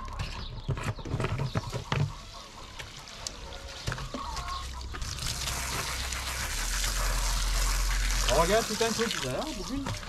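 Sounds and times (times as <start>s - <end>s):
plastic knocks and clatter: 0.2s - 2.2s
water running from garden hose: 2.7s - 10.0s.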